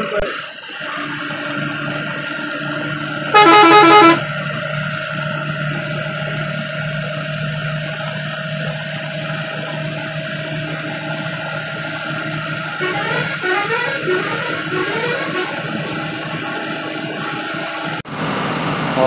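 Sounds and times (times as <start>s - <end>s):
bus engine droning: 0.0s - 19.0s
bus horn: 1.9s - 5.0s, 11.8s - 17.3s.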